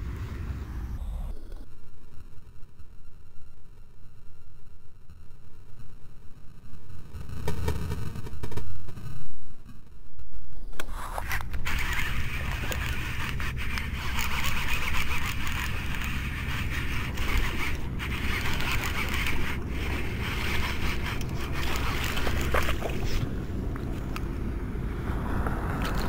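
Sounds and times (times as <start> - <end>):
wind blowing across microphone: 7.0 - 26.0.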